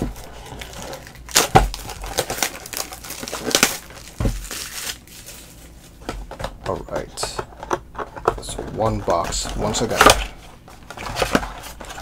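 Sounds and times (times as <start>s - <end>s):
plastic shrink-wrap crinkling: 0.0s - 6.0s, 8.8s - 12.0s.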